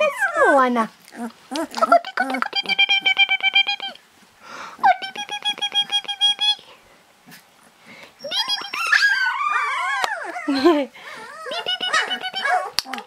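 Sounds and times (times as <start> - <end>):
puppies yipping: 8.2 - 13.0.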